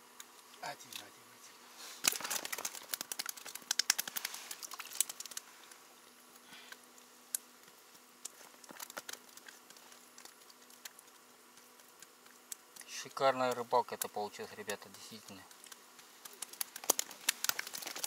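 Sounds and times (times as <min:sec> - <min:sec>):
faint steady hum: 0:00.0 - 0:18.0
fishing line clicks and crackles: 0:02.0 - 0:05.5, 0:14.7 - 0:18.0.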